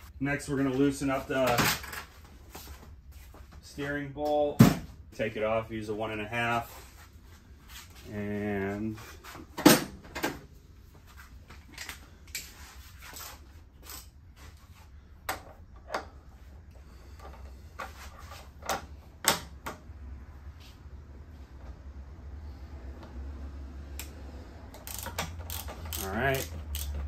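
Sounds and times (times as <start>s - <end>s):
ratchet clicking on bolt: 24.8s - 27.0s.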